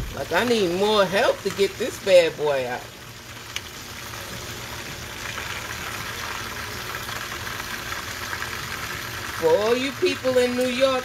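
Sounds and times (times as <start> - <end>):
fish sizzling in hot oil: 0.0 - 11.0.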